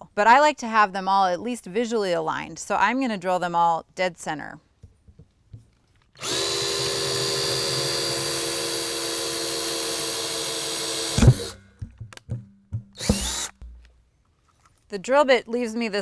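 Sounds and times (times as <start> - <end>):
drill motor whine: 6.2 - 11.6, 13.0 - 13.5
knocks on plastic: 11.4 - 13.9.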